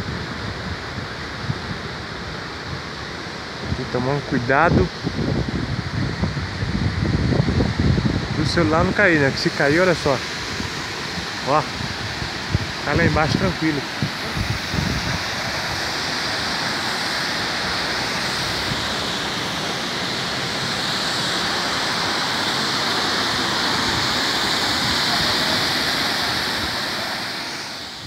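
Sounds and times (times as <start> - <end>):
waterfall rushing: 7.6 - 28.0.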